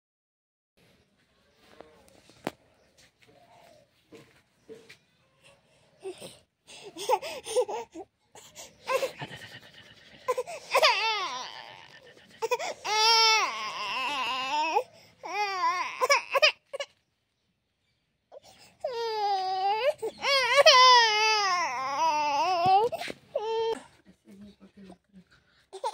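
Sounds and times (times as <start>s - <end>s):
person crying and sobbing: 8.9s - 16.2s.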